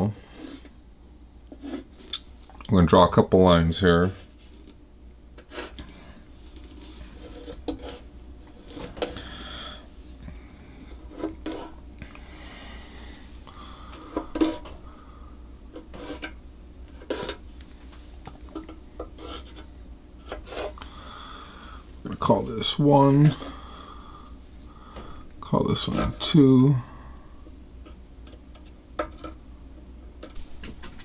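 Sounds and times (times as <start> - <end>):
pen scratching on wood: 6.6 - 8.1, 19.2 - 19.6.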